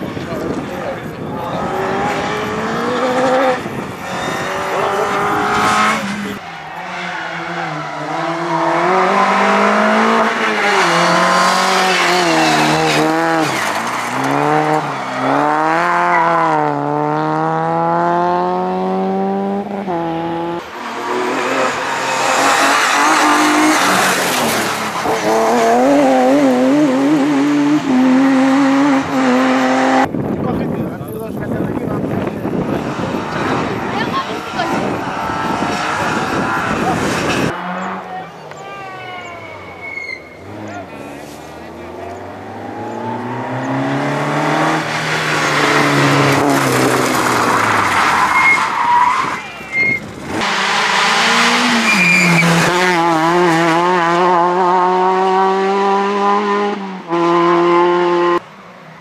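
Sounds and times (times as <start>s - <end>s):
rally car engines revving: 0.0s - 59.0s.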